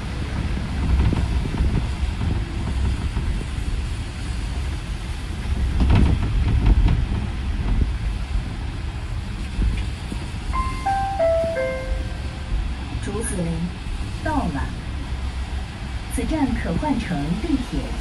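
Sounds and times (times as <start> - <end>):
bus rumbling on wet road: 0.0 - 10.4, 13.0 - 18.0.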